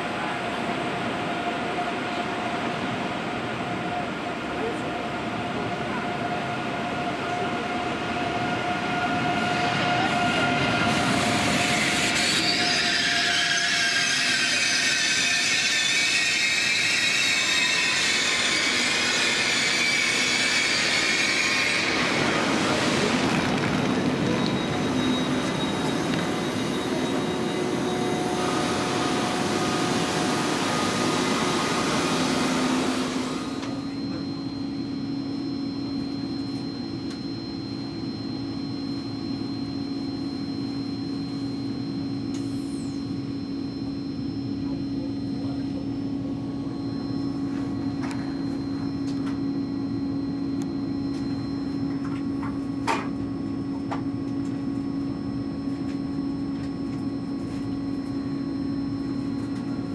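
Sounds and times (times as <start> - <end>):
faint high whine: 16.3 - 59.9.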